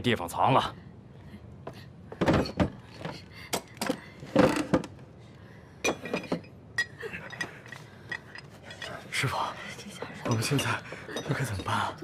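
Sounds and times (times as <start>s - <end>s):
hard objects knocking and clinking: 10.2s - 11.8s.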